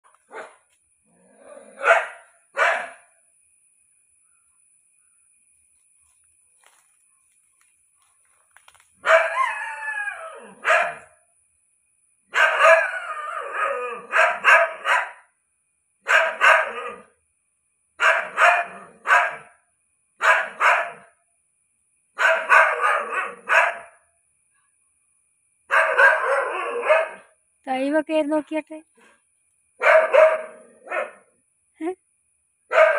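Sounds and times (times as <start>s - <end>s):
dog barking: 0.3s - 0.6s, 1.8s - 3.1s, 9.0s - 9.6s, 10.6s - 11.2s, 12.3s - 15.3s, 16.0s - 17.1s, 18.0s - 19.6s, 20.2s - 21.1s, 22.2s - 24.0s, 25.7s - 27.3s, 29.8s - 31.3s, 32.7s - 32.9s.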